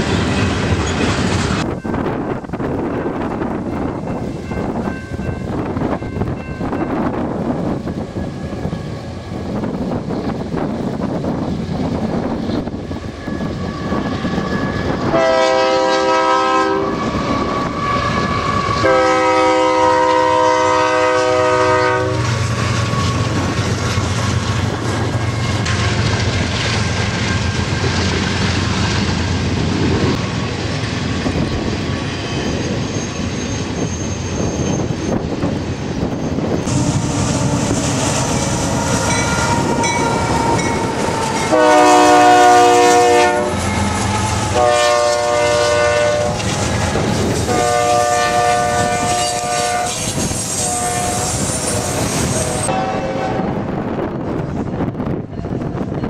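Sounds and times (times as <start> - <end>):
locomotive engine rumble: 0.0 - 56.0
locomotive air horn: 14.6 - 23.4, 36.6 - 53.6
train wheels clacking on rails: 22.1 - 48.1.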